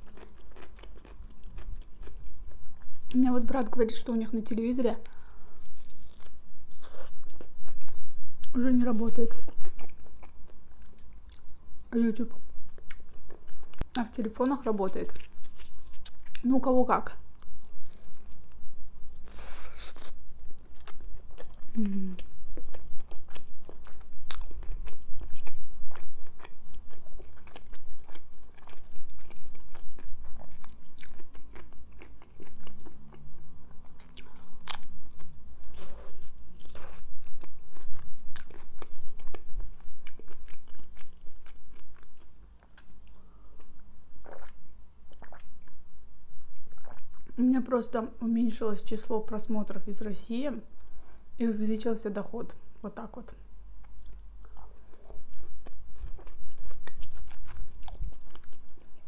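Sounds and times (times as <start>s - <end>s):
wet chewing clicks: 20.0s - 33.3s, 55.3s - 59.0s.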